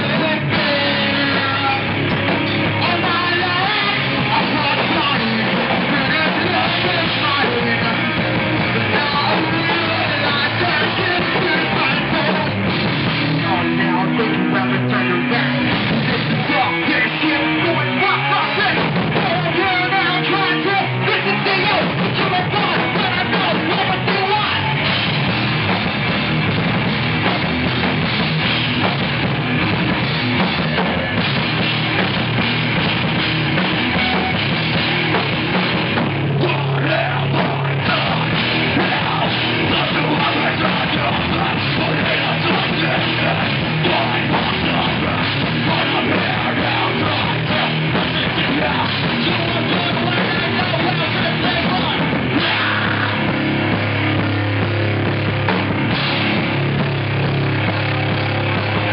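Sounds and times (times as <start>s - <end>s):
bass guitar: 0.0s - 58.9s
distorted electric guitars: 0.0s - 58.9s
drum kit playing: 0.0s - 58.9s.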